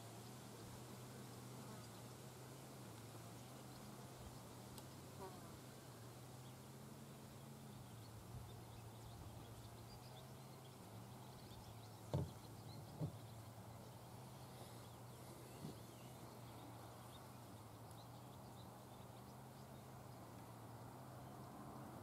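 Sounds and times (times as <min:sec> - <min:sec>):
insects buzzing: 0:00.0 - 0:22.0
soft thumps: 0:12.1 - 0:13.4.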